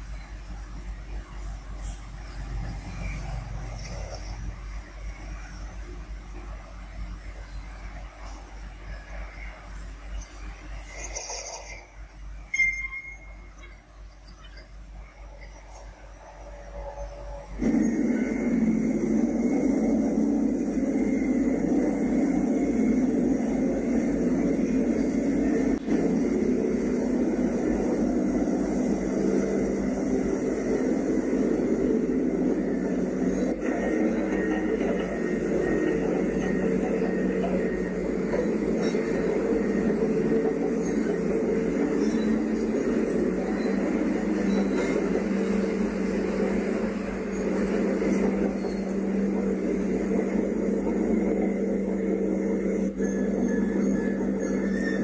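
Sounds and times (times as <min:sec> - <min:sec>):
diesel truck engine under load: 0:17.5 - 0:55.0.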